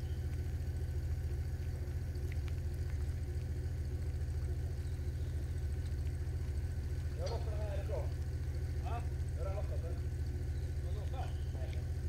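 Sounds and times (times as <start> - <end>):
engine idling: 0.0 - 12.0
faint clicks: 1.5 - 5.0.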